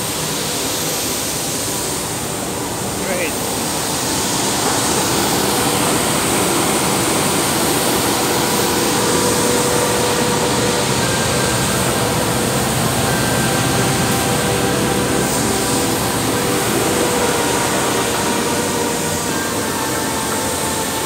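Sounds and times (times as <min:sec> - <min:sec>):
faint steady tones: 0:00.2 - 0:21.0
loud machinery rush: 0:02.0 - 0:21.0
higher tone: 0:05.0 - 0:21.0.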